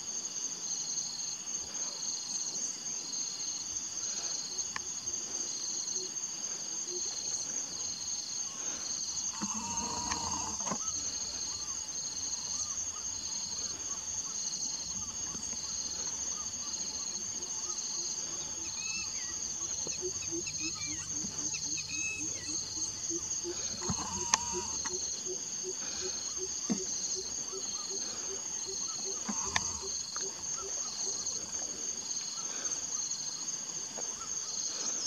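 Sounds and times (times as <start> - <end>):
insects trilling: 0.0 - 35.0.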